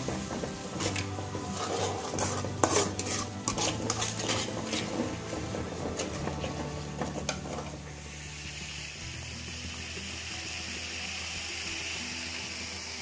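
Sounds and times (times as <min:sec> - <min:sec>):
spoon scraping metal pan: 0:00.0 - 0:07.9
oil sizzling: 0:00.0 - 0:13.0.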